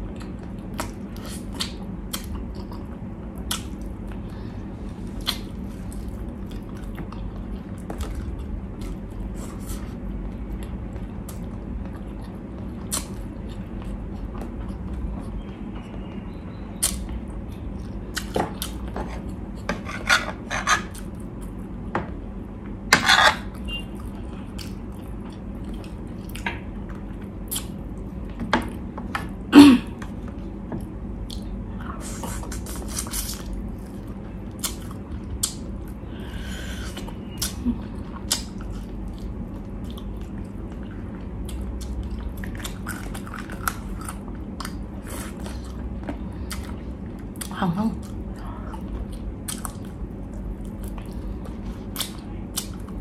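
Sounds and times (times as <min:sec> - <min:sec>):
chewing and lip-smacking: 0:00.0 - 0:04.2, 0:05.2 - 0:16.0, 0:23.8 - 0:28.9, 0:30.8 - 0:36.0, 0:36.9 - 0:53.0
steady low hum: 0:00.0 - 0:53.0.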